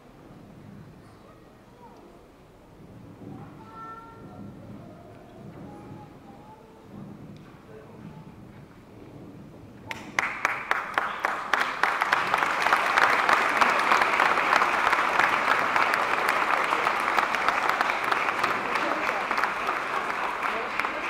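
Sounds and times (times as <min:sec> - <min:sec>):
audience applauding: 0:09.9 - 0:21.0.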